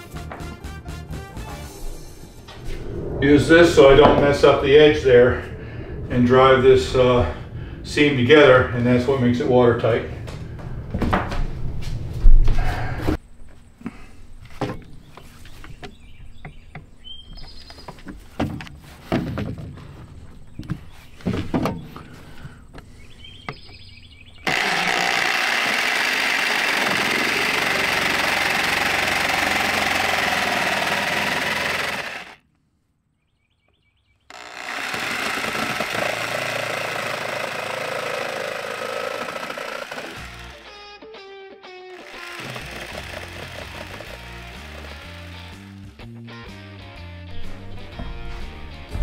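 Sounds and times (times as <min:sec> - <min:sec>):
jigsaw cutting laminate: 0:24.5 - 0:32.4, 0:34.3 - 0:40.7, 0:42.0 - 0:45.9.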